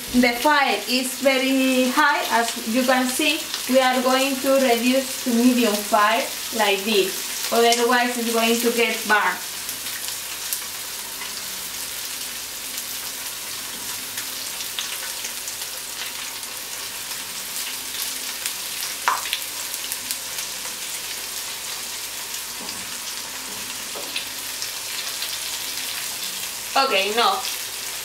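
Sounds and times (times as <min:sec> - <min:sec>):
fish frying in hot oil: 0:00.0 - 0:28.0
oil crackling and popping: 0:17.6 - 0:20.3.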